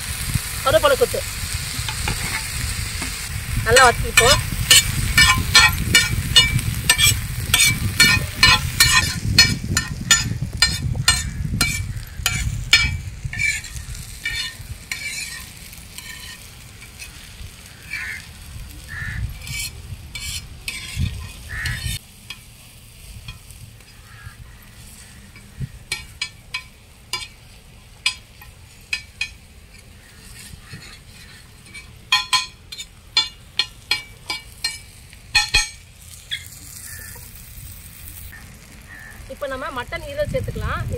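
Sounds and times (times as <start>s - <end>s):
vegetables sizzling in oil: 0.0s - 40.9s
metal spatula scraping iron pan: 1.8s - 18.3s, 18.9s - 22.5s, 24.8s - 37.4s.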